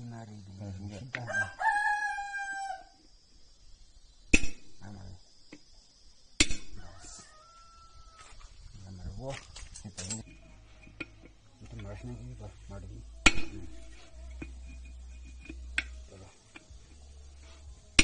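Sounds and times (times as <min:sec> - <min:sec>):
rooster crowing: 0:01.2 - 0:03.0, 0:06.7 - 0:08.6.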